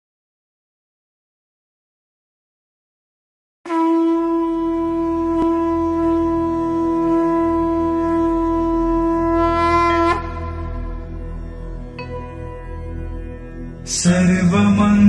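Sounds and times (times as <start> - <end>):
conch shell blown: 3.7 - 13.8.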